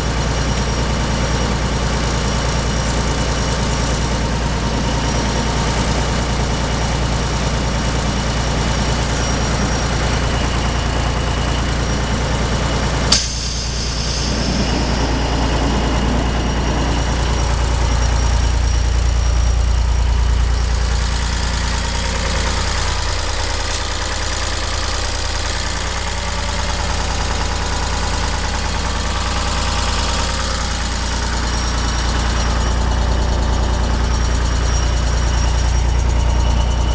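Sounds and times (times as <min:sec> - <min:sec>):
diesel engine idling: 0:00.0 - 0:36.9
sharp click: 0:13.1 - 0:16.4.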